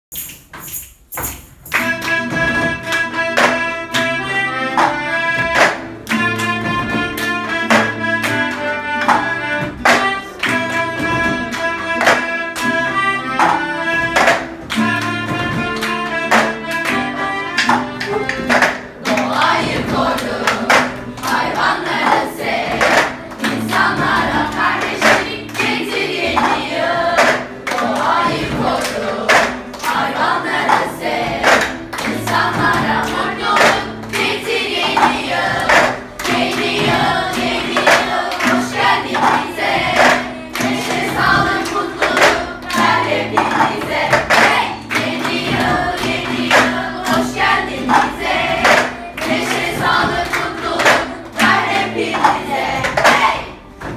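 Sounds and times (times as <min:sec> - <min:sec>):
acoustic guitar: 0:00.1 - 0:53.9
sharp percussive beats: 0:00.1 - 0:53.9
children singing in unison: 0:15.2 - 0:53.9.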